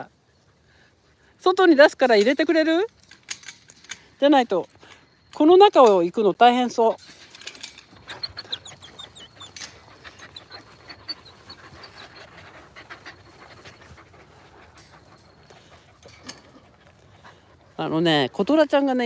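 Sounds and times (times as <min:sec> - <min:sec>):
dog panting: 0:07.8 - 0:19.0.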